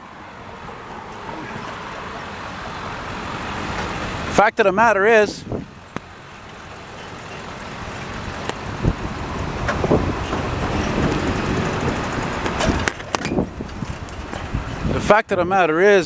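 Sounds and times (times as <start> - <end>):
passing car traffic: 0.0 - 16.0
wind on microphone: 5.3 - 5.8, 8.7 - 15.0
bicycle clicks and rattles: 5.8 - 14.7.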